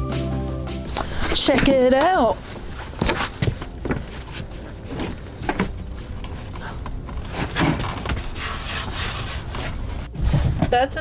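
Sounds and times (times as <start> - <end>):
wood knocking and clattering: 1.5 - 9.7.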